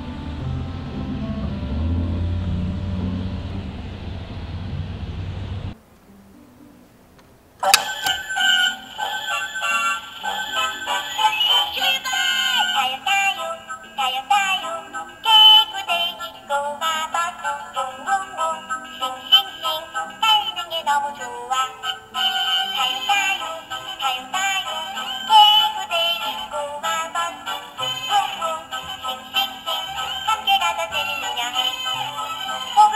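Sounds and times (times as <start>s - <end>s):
synthetic sung melody: 7.6s - 32.9s.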